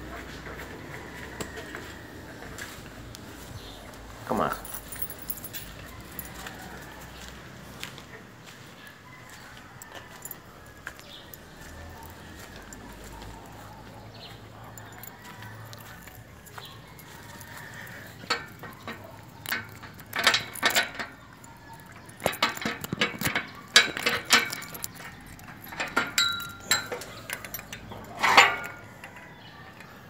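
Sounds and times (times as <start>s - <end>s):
padlock chain and keys clinking: 3.5s - 7.6s, 9.3s - 30.0s
metal gate clanking: 14.7s - 29.7s.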